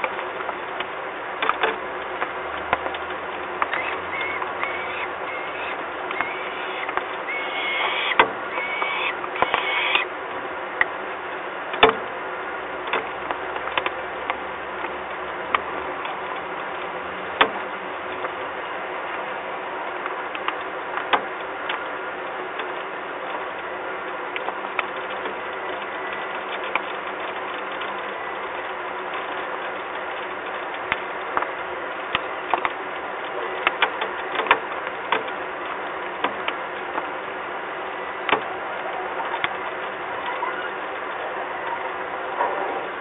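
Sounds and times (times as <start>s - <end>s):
sharp ticks: 2.7s - 10.1s.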